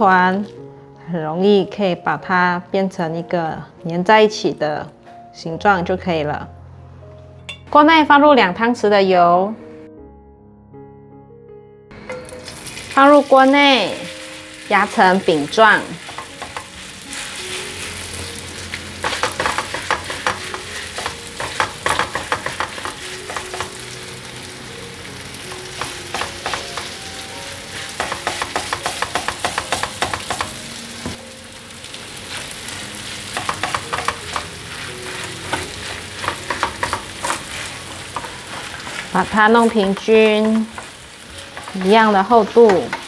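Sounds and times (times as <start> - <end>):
pancake batter sizzling in oil: 12.2 - 24.6, 31.0 - 40.0
spatula tapping and scraping pan: 16.0 - 16.8, 19.0 - 23.8, 25.5 - 27.0, 27.9 - 31.2, 33.3 - 42.0, 42.6 - 43.0.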